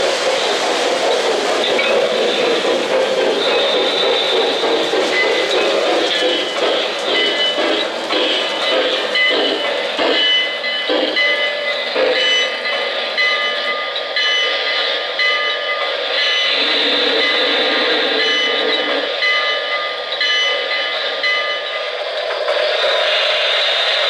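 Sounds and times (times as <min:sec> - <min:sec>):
steady steam hiss: 0:00.0 - 0:21.2, 0:21.8 - 0:24.0.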